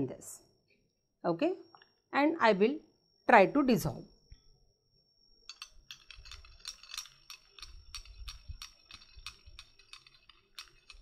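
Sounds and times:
stirring rod clinking in glass beaker: 5.4s - 11.0s.

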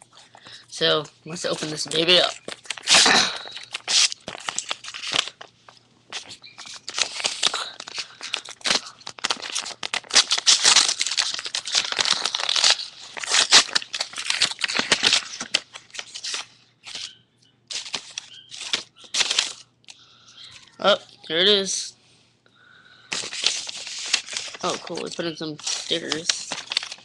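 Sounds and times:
paper envelope rustling and tearing: 1.4s - 17.1s, 17.7s - 19.6s, 23.1s - 27.0s.

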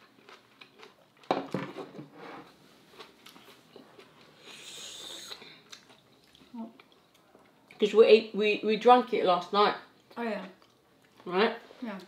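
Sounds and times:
soft hiss: 3.4s - 6.6s.

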